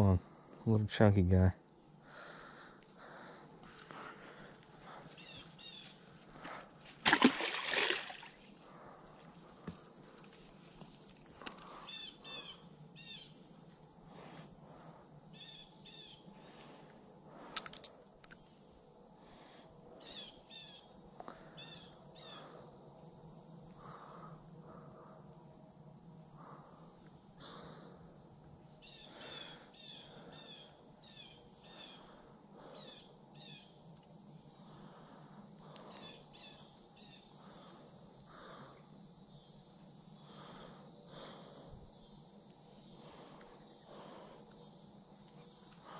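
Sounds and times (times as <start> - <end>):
high-pitched insect chorus: 0.0 - 45.9
insect chirps: 0.0 - 45.9
sharp clicks: 17.5 - 18.4.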